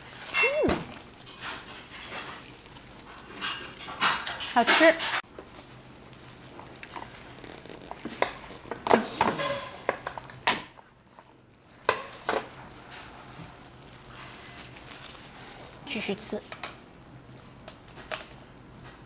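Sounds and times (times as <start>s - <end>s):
scissors cracking crab shell: 17.6s - 18.3s.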